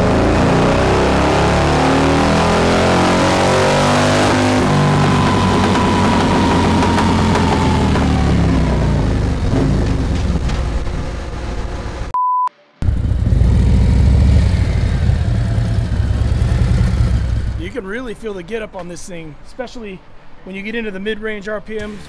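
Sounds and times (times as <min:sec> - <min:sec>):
motorcycle engine revving: 0:00.0 - 0:11.4, 0:12.8 - 0:17.7
short high beep: 0:12.1 - 0:12.5.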